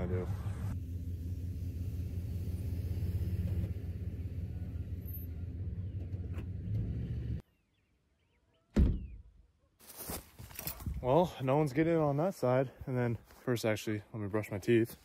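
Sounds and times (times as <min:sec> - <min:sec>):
truck engine idling: 0:00.0 - 0:07.4.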